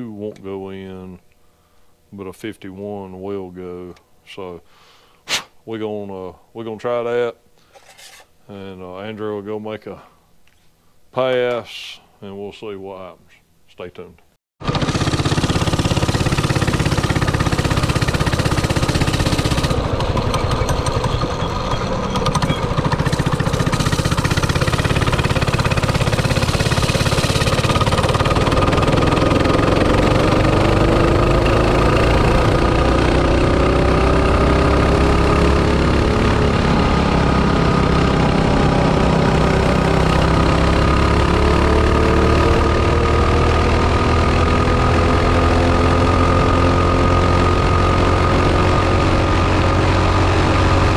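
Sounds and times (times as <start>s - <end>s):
small motorbike engine revving: 14.6s - 50.9s.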